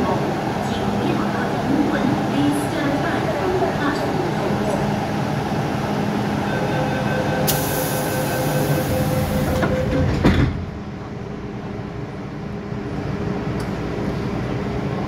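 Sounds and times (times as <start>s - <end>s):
train hum: 0.0s - 15.0s
door-closing warning tone: 6.5s - 10.5s
train doors shutting with thud: 7.4s - 10.8s
air hiss: 7.5s - 9.5s.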